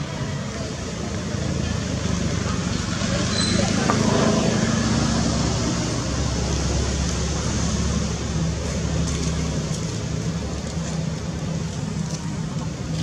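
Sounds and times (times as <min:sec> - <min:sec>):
low engine hum: 0:02.8 - 0:13.0.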